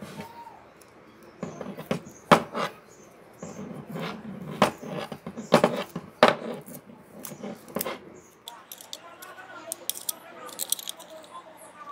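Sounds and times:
plastic tape crackling: 6.6 - 11.4.

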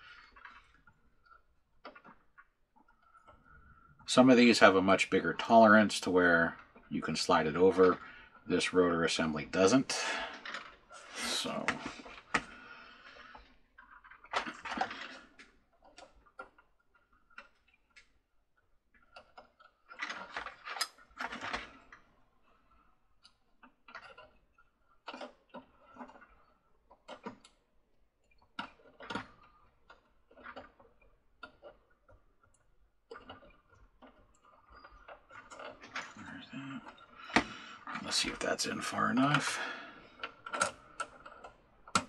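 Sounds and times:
small plastic parts clicking: 10.3 - 38.4, 39.2 - 42.0.

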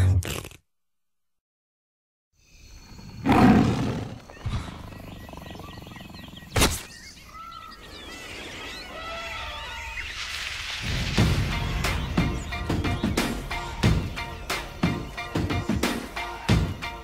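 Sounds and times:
animal chirping and warbling: 3.1 - 10.2.

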